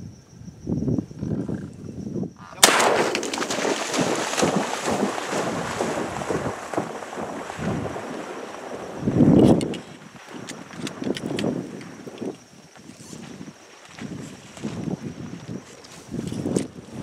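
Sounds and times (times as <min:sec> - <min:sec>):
loud splash: 0:02.6 - 0:09.1
dog splashing through water: 0:02.6 - 0:09.2.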